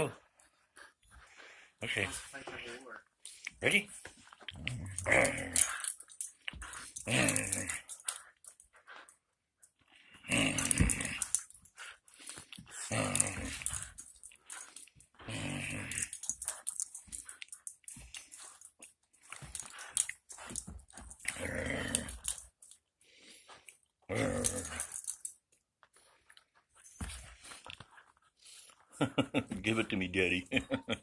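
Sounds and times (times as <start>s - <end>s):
dog play-growling: 4.0s - 9.2s, 10.0s - 22.8s, 24.0s - 25.3s.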